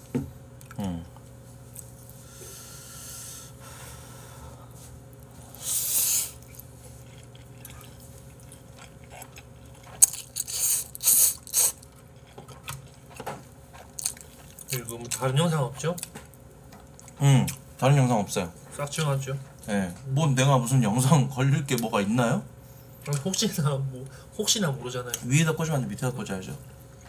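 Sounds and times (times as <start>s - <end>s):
wet chewing: 5.1s - 17.6s
person slurping noodles: 5.4s - 6.5s, 10.4s - 11.8s.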